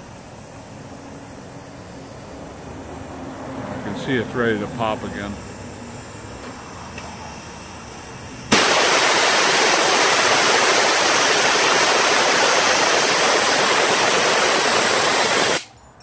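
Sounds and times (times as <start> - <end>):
loud hiss of escaping steam: 3.9 - 15.6.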